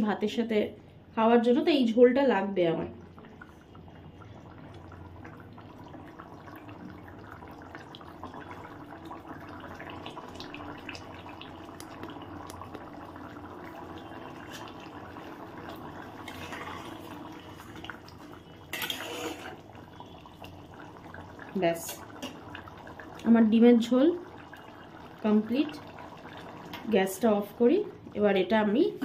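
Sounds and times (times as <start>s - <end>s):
curry bubbling in pot: 2.3s - 29.0s
spatula stirring pot: 16.2s - 17.1s, 18.7s - 19.6s.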